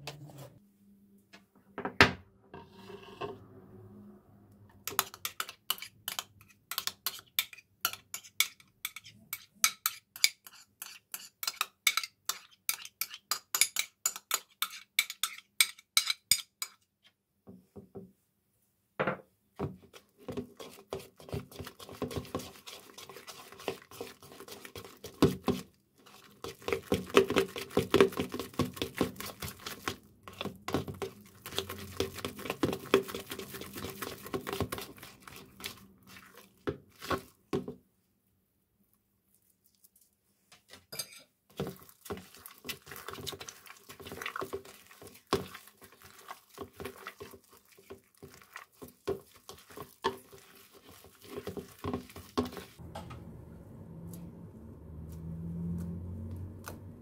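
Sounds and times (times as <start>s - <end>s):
spoon scraping plastic container: 2.6s - 3.4s, 4.7s - 16.8s, 19.8s - 37.7s, 41.5s - 52.8s
slime squelching: 19.8s - 37.6s, 41.5s - 52.8s.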